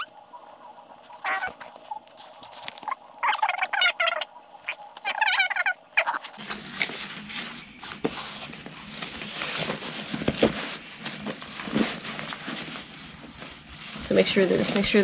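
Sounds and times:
fabric and straps rustling: 0:06.3 - 0:15.0.

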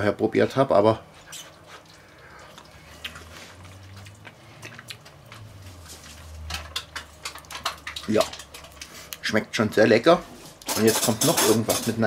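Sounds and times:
low steady hum: 0:00.0 - 0:12.0
mouth clicks and smacks: 0:01.3 - 0:05.5.

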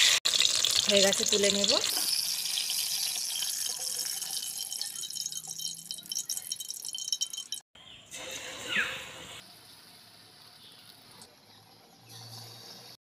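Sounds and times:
fritters sizzling in hot oil: 0:00.0 - 0:07.6.

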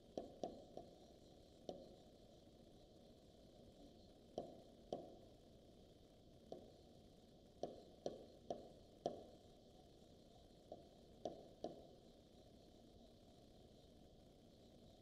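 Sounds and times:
faint steady hiss: 0:00.0 - 0:15.0
stylus tapping on touch screen: 0:00.2 - 0:01.0, 0:04.4 - 0:05.1, 0:07.6 - 0:09.4, 0:10.7 - 0:11.8.

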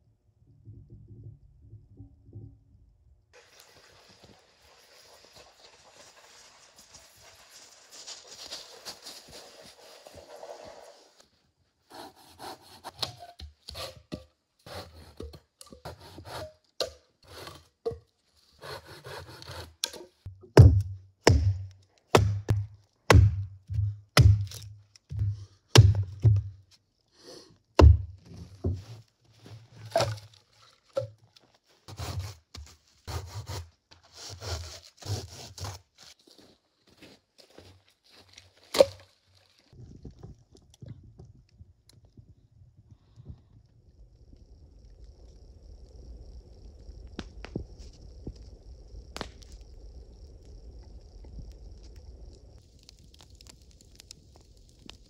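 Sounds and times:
hatchet chopping wood: 0:18.6 - 0:26.5, 0:27.8 - 0:28.1.

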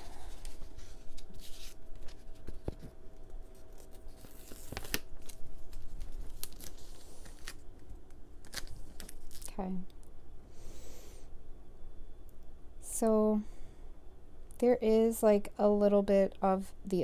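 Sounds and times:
paper crinkling and tearing: 0:00.1 - 0:09.6.

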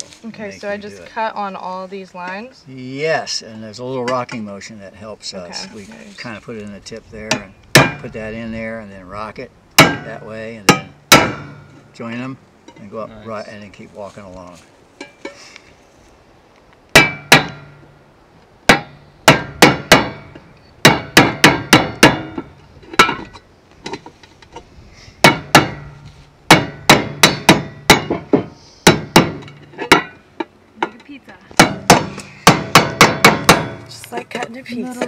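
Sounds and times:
hammer striking chisel on metal can: 0:07.3 - 0:08.1, 0:09.8 - 0:11.7, 0:17.0 - 0:17.7, 0:18.7 - 0:23.3, 0:25.2 - 0:25.9, 0:26.5 - 0:30.2, 0:31.6 - 0:33.8.

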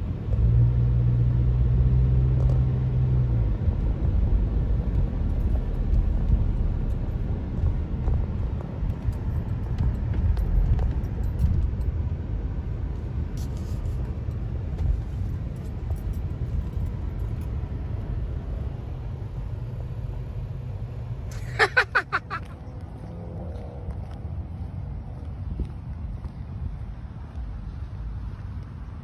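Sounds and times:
car engine and road noise: 0:00.0 - 0:29.0.

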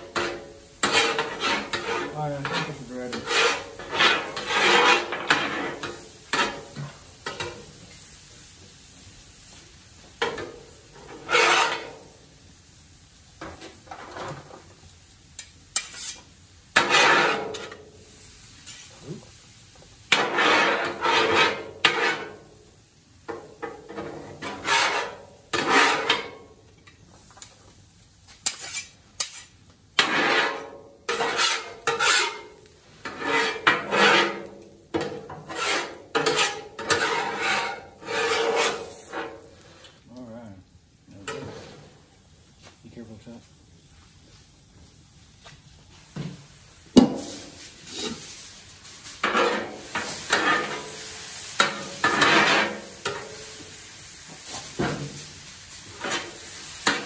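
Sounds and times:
metal spatulas scraping a griddle: 0:00.0 - 0:08.1, 0:10.2 - 0:12.1, 0:13.4 - 0:14.7, 0:15.4 - 0:17.9, 0:18.6 - 0:19.0, 0:20.1 - 0:22.5, 0:23.3 - 0:26.6, 0:28.3 - 0:40.0, 0:41.2 - 0:42.0, 0:47.2 - 0:57.0.

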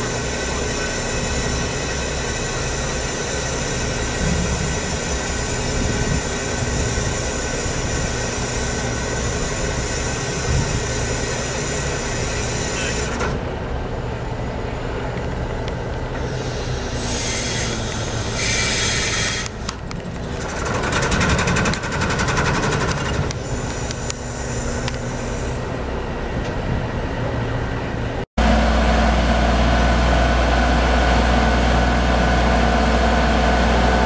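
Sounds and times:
crane diesel engine under load: 0:00.0 - 0:34.0
high hiss: 0:16.3 - 0:19.6.

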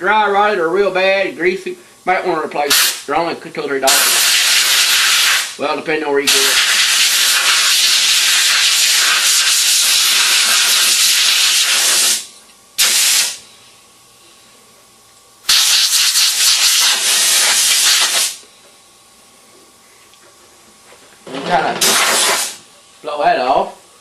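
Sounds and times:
compressed air hissing from blow gun: 0:02.7 - 0:03.0, 0:03.9 - 0:05.6, 0:06.3 - 0:13.4, 0:15.5 - 0:18.4, 0:21.8 - 0:22.6.

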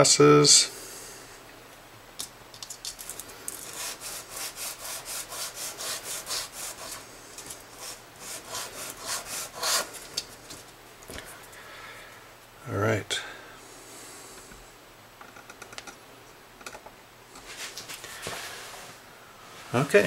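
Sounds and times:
sanding on sandpaper: 0:03.6 - 0:09.9.

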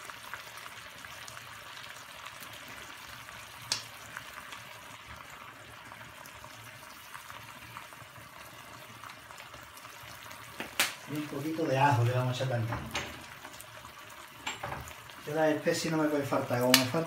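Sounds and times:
chicken sizzling in a frying pan: 0:00.0 - 0:17.0.

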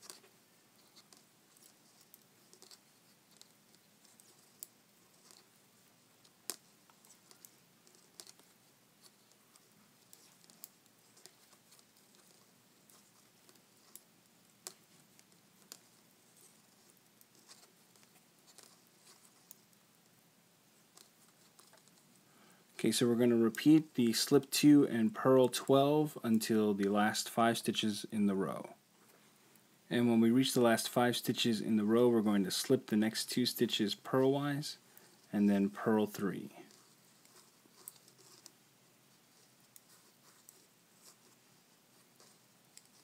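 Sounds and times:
knitting needles clicking: 0:00.0 - 0:05.5, 0:06.2 - 0:19.7, 0:20.9 - 0:22.0, 0:36.7 - 0:38.6.

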